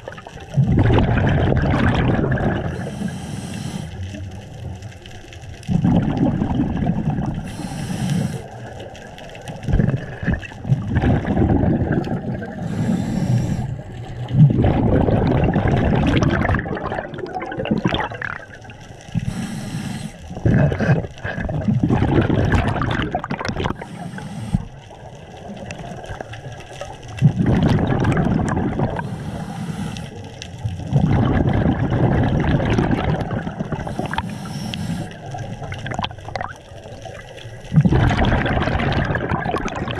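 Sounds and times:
gurgling exhaled bubbles: 0:00.0 - 0:39.9
diver breathing through regulator: 0:02.7 - 0:04.2, 0:07.4 - 0:08.6, 0:12.5 - 0:13.9, 0:19.1 - 0:21.7, 0:23.7 - 0:24.9, 0:28.8 - 0:30.5, 0:33.8 - 0:35.4.

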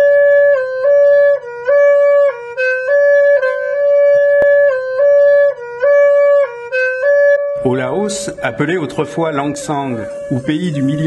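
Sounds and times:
horn-like wind instrument notes: 0:00.0 - 0:11.0.

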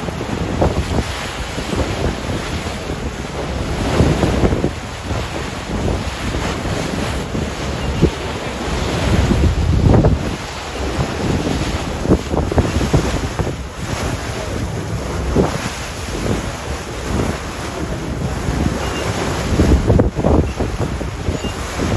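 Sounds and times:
choppy sea water washing: 0:00.0 - 0:21.9
wind buffeting microphone: 0:00.0 - 0:21.9.

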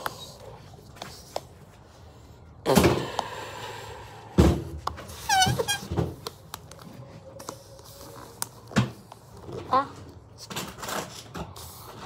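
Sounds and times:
puffs of breath: 0:02.7 - 0:04.4
glove squeaky chirps: 0:05.1 - 0:05.9.

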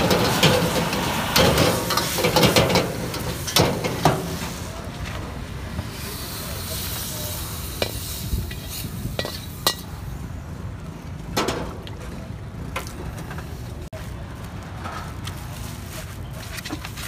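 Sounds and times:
wok sizzling: 0:00.0 - 0:10.5
metal spatula clinking on wok: 0:07.8 - 0:09.9.

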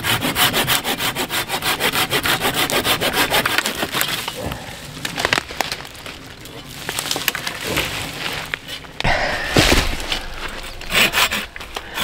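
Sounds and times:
hand saw cutting a branch: 0:00.0 - 0:04.3.

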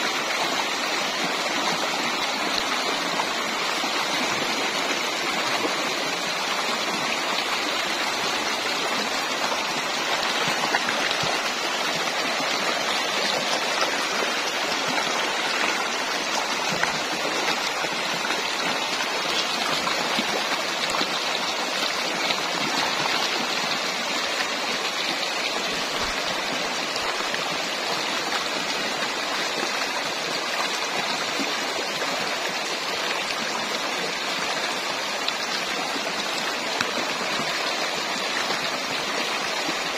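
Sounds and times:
stream rushing over stones: 0:00.0 - 0:39.9.

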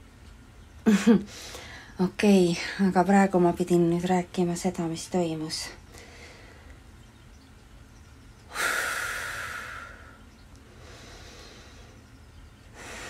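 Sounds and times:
woman breathing heavily: 0:01.3 - 0:02.0, 0:05.9 - 0:06.8, 0:08.5 - 0:12.1, 0:12.7 - 0:13.0.

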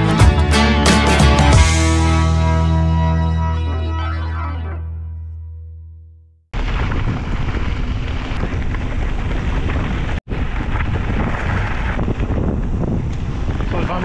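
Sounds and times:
tyres rolling on gravel: 0:06.6 - 0:12.5
wind buffeting microphone: 0:06.6 - 0:14.0.

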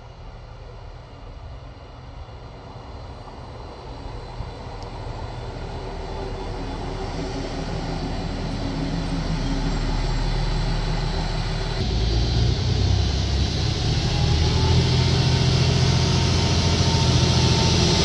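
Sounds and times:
diesel railcar approaching: 0:00.0 - 0:18.0.

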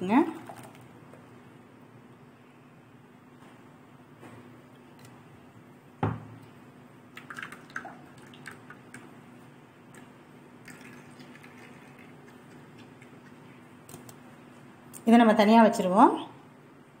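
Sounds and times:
faint steady hum: 0:00.0 - 0:17.0
liquid dripping into bowl: 0:07.1 - 0:09.1, 0:09.9 - 0:14.1.

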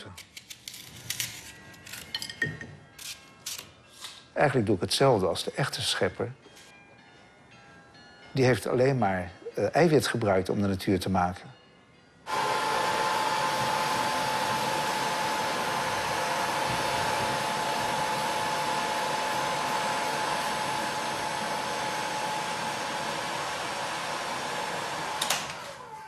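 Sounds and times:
heat gun blowing hiss: 0:12.3 - 0:25.6
fan motor whine: 0:12.3 - 0:26.0.

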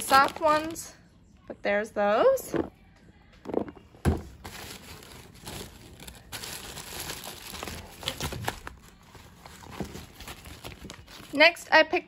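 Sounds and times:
plastic bag rustling: 0:00.0 - 0:00.9, 0:03.5 - 0:11.4
sharp plastic crackles: 0:03.5 - 0:08.9.

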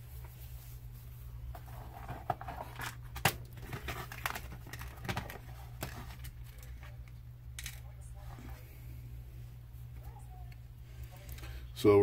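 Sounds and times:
steady low hum: 0:00.0 - 0:12.0
plastic clicks and rustling: 0:02.0 - 0:07.9.

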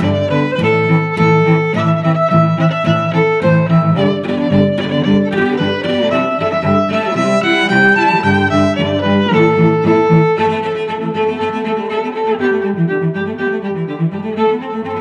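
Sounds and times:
low cello-like notes: 0:00.0 - 0:15.0
quick string melody: 0:00.0 - 0:15.0.

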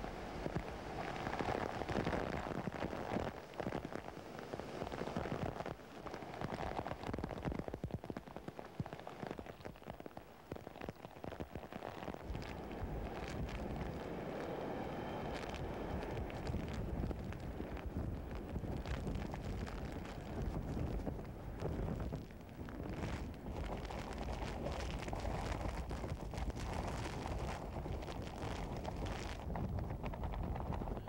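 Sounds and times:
heavy rain pelting: 0:00.0 - 0:31.0
wind gusting: 0:12.2 - 0:31.0.

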